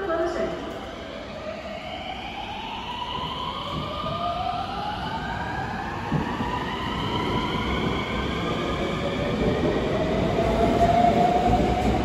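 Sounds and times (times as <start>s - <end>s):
electric train inverter whine: 0.3s - 12.0s
train wheels rumbling on rails: 2.8s - 12.0s.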